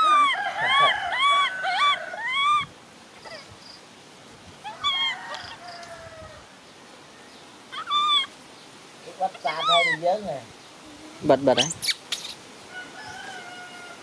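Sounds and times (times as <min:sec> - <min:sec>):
baby monkey crying: 0:00.0 - 0:03.5, 0:04.6 - 0:05.2, 0:07.7 - 0:08.4, 0:09.3 - 0:10.2, 0:11.5 - 0:12.4.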